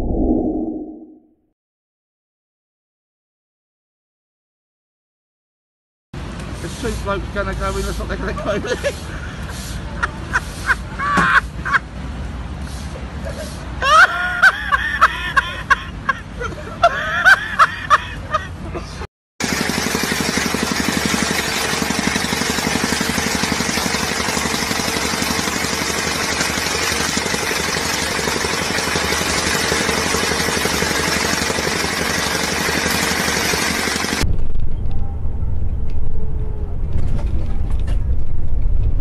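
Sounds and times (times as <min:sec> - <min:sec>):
people's voices and laughter: 0:08.1 - 0:11.8
vibratory rammer engine running: 0:19.4 - 0:34.6.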